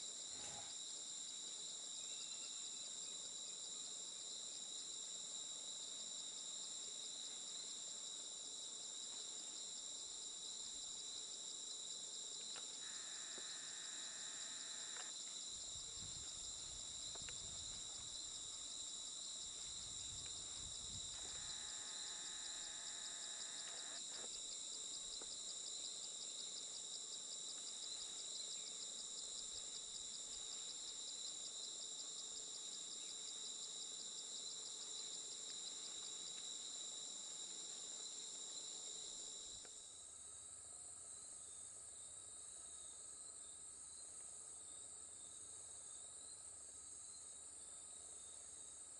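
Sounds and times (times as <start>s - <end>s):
insect chorus trilling: 0.0s - 48.9s.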